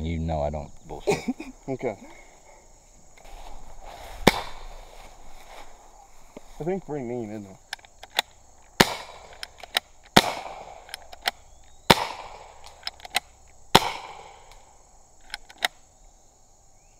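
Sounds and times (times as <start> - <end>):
paintball pistol pops: 4.3 - 4.7, 7.7 - 15.8.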